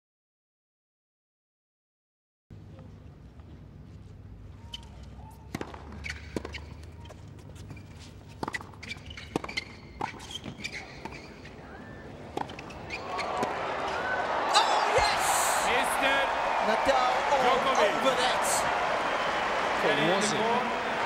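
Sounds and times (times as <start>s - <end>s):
tennis ball bouncing: 5.5s - 6.9s, 8.3s - 11.3s, 12.3s - 13.6s
crowd noise: 11.6s - 21.0s.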